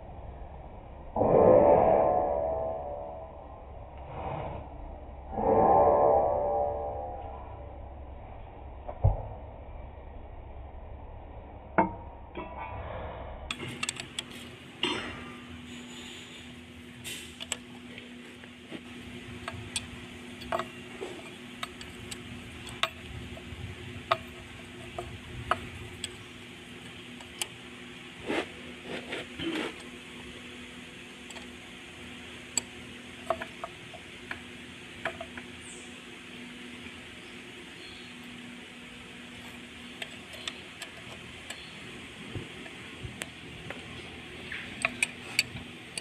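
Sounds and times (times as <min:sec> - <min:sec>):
steady low hum: 0:00.0 - 0:46.0
spanner clicking on nuts: 0:13.5 - 0:14.6, 0:17.2 - 0:17.8, 0:19.0 - 0:27.6, 0:31.2 - 0:31.6, 0:32.3 - 0:35.7, 0:39.3 - 0:46.0.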